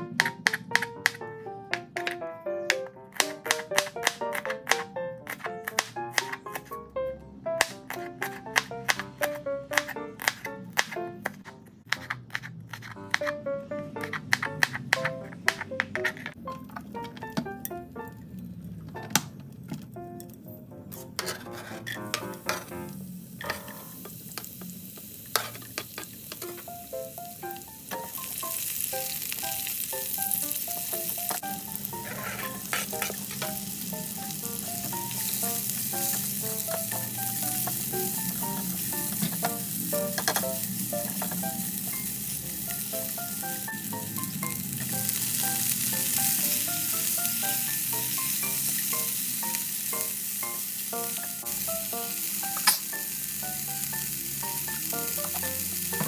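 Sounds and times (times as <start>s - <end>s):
vegetables sizzling in a pan: 22.0s - 56.0s.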